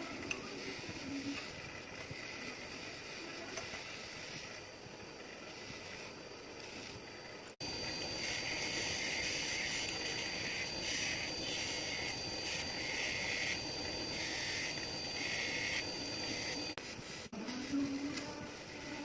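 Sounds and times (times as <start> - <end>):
chisel grinding hiss: 0.2 - 19.0
bench grinder whine: 4.6 - 16.8.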